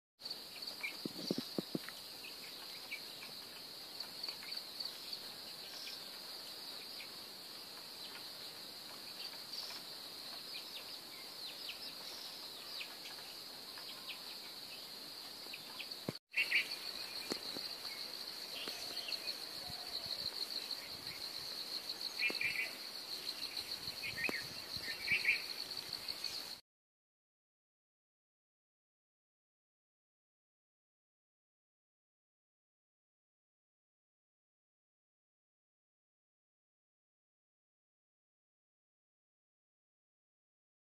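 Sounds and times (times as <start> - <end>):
high-pitched insect chorus: 0.2 - 26.6
bird chirps: 9.0 - 20.0, 22.1 - 26.6.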